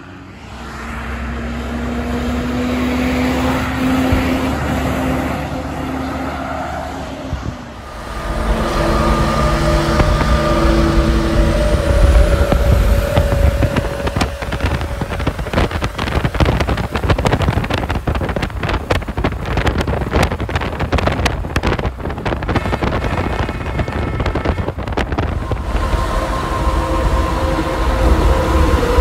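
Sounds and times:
road noise: 0.0s - 29.0s
wind buffeting microphone: 0.8s - 5.9s, 7.1s - 29.0s
truck air horn: 2.6s - 17.8s, 22.2s - 29.0s.

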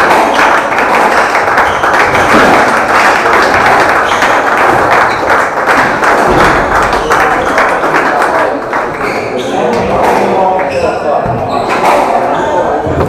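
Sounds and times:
crowd clapping: 0.0s - 10.8s
crowd noise: 0.0s - 13.0s
squash ball thudding: 2.0s - 2.8s.

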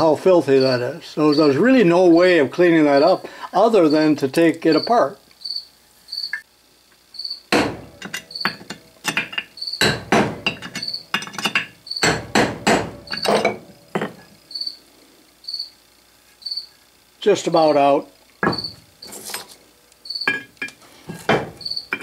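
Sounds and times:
hammer tapping metal: 7.5s - 14.3s, 18.4s - 18.8s, 20.2s - 22.0s.

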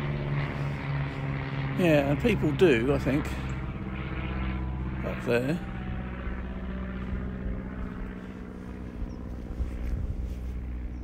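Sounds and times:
distant engine droning: 0.0s - 11.0s
wind rumble on microphone: 5.8s - 11.0s.

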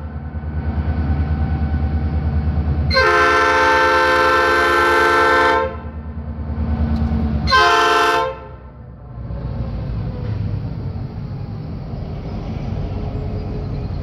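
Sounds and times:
diesel locomotive engine rumbling: 0.0s - 14.0s
locomotive air horn blasts: 2.9s - 6.0s, 7.4s - 8.7s.

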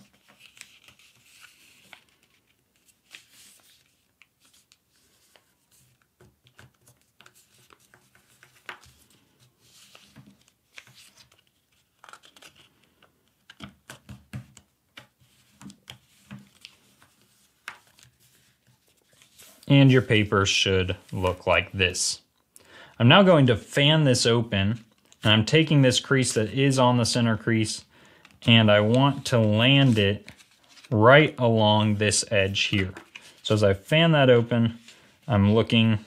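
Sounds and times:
paper rustling and crinkling: 0.0s - 20.0s, 28.2s - 31.3s, 31.9s - 33.5s.

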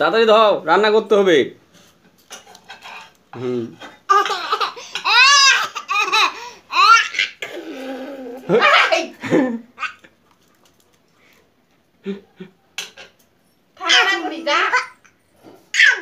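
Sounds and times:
person laughing: 9.2s - 9.7s
babbling: 15.7s - 16.0s.

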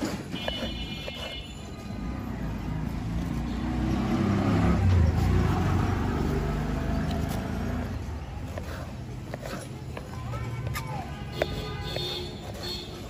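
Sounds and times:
vehicle engine passing by: 2.5s - 8.2s.

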